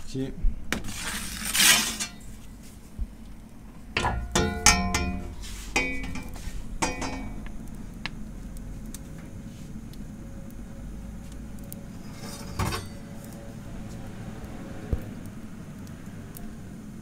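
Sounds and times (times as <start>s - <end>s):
metal peel scraping stone: 0.7s - 2.5s, 11.9s - 13.2s
gas burner rushing: 3.6s - 17.0s
metallic clanks: 4.0s - 7.5s, 12.0s - 13.1s.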